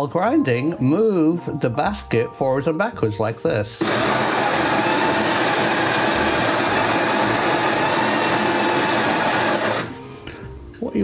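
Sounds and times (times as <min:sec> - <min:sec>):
coffee grinder grinding beans: 0:03.8 - 0:10.0.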